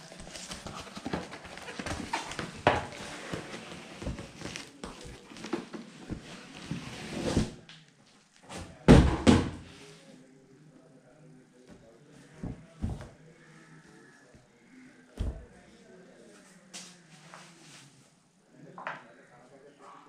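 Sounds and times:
cardboard scraping and rustling: 0.0 - 7.6.

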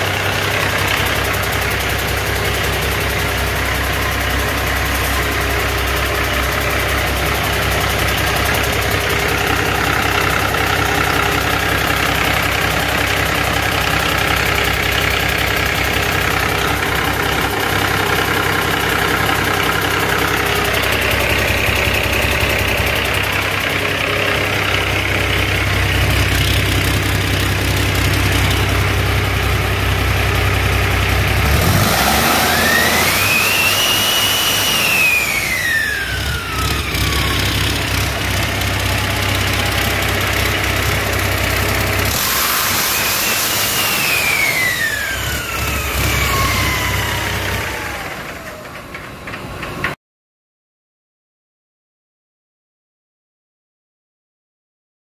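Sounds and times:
diesel engine idling: 0.0 - 49.9
engine revving with rising whine: 16.8 - 48.6.

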